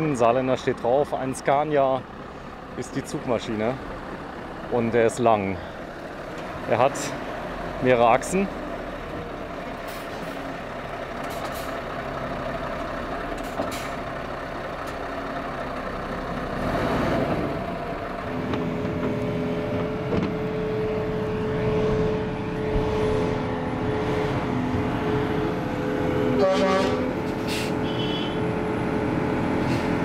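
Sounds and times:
heavy diesel machinery running: 0:00.0 - 0:30.0
humming whine: 0:19.8 - 0:28.5.

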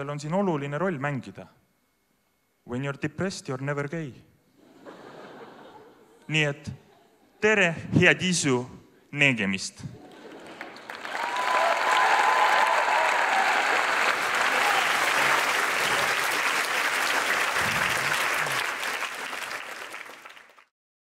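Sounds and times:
audience clapping and cheering: 0:10.0 - 0:20.7
long cry from crowd: 0:11.0 - 0:20.0.

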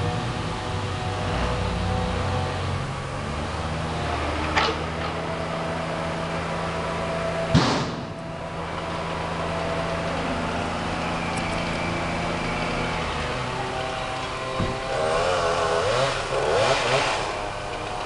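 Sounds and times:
heavy truck engine running: 0:00.0 - 0:18.0
sharp knocks: 0:07.5 - 0:08.3.

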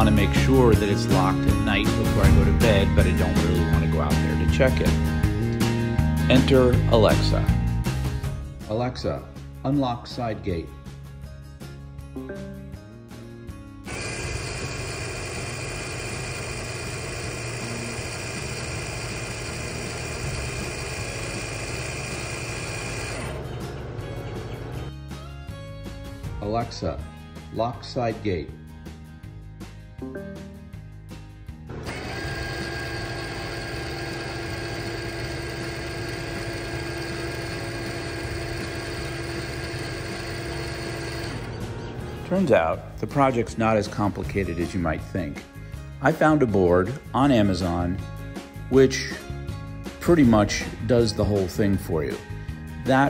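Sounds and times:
linear actuator motor whine: 0:13.9 - 0:24.7, 0:31.7 - 0:41.7.

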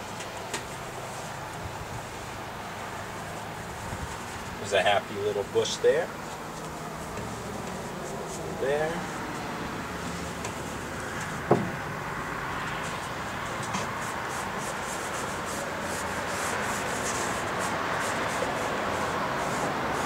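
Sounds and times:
outdoor background noise: 0:00.0 - 0:20.0
paintbrush scratching on canvas: 0:12.8 - 0:20.0.

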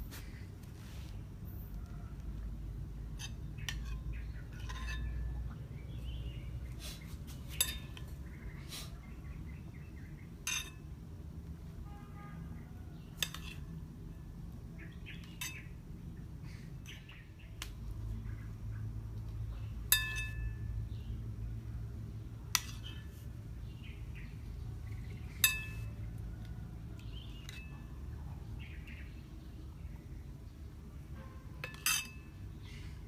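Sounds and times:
metal utensils clinking on cookware: 0:03.2 - 0:05.3, 0:07.5 - 0:08.1, 0:10.4 - 0:10.9, 0:31.6 - 0:32.4.

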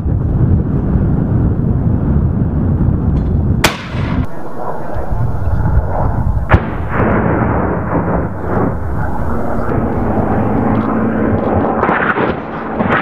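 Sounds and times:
loud low rumble: 0:04.0 - 0:13.0.

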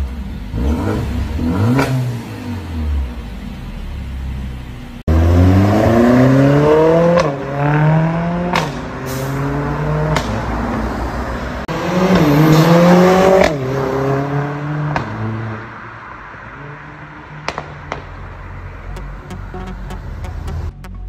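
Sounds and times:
car engine accelerating hard: 0:00.0 - 0:15.9.

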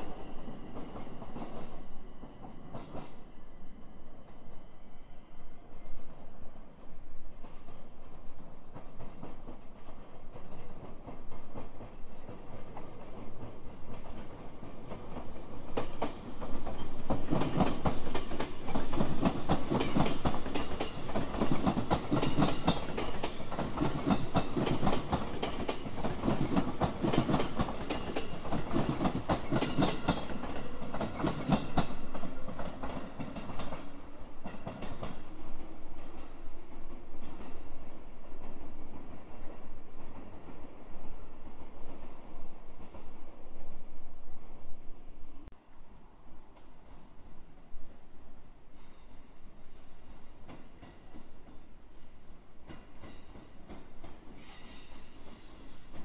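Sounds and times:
train wheels clattering over rail joints: 0:07.5 - 0:35.2.

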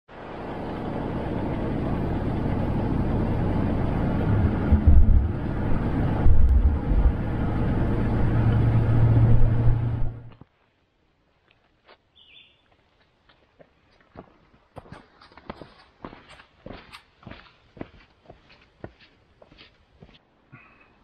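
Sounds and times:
low hum: 0:00.1 - 0:10.4
car interior road rumble: 0:00.7 - 0:10.4
low thuds: 0:04.2 - 0:10.4.

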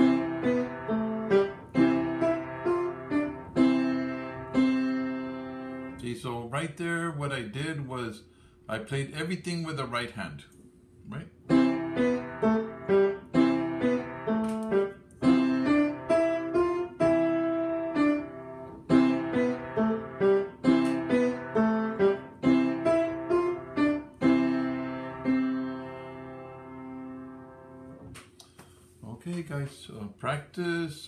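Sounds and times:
keyboard melody: 0:00.0 - 0:06.0, 0:11.5 - 0:28.0.

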